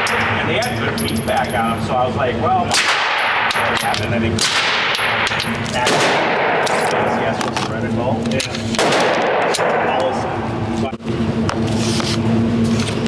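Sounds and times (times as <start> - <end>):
loud background noise: 0.0 - 13.0
suppressed pistol shots: 2.7 - 3.7, 4.4 - 7.1, 8.8 - 9.9.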